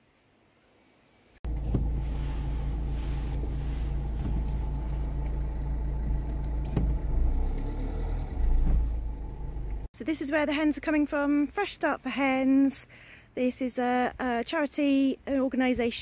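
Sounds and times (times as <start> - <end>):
car engine rumble from inside: 1.4 - 9.9.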